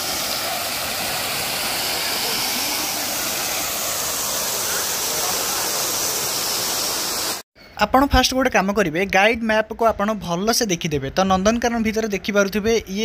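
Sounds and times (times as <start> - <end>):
steady rushing hiss: 0.0 - 7.4.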